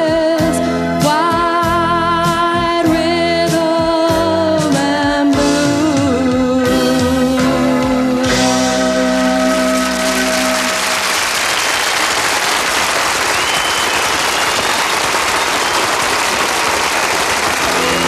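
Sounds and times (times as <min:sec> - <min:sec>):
studio audience applauding: 0:09.3 - 0:18.0.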